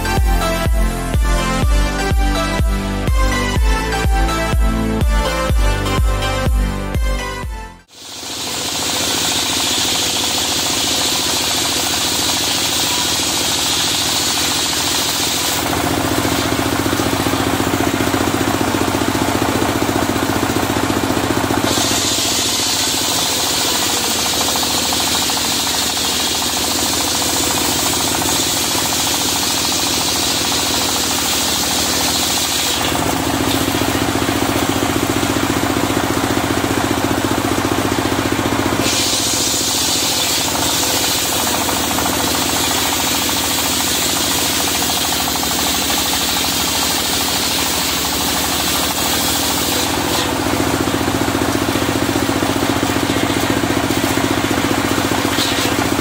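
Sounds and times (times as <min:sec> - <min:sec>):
engine droning: 0:00.0 - 0:56.0
saw hissing through log: 0:07.9 - 0:19.3, 0:20.2 - 0:35.4, 0:38.7 - 0:56.0.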